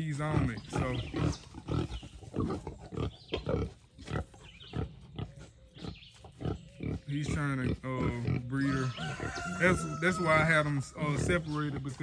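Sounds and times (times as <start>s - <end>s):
hogs grunting: 0.0s - 12.0s.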